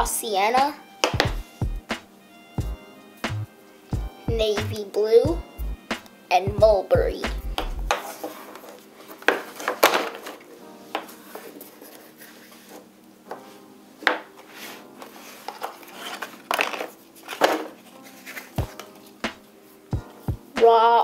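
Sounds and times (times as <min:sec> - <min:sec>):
crayons knocking on tabletop: 0:01.0 - 0:01.4.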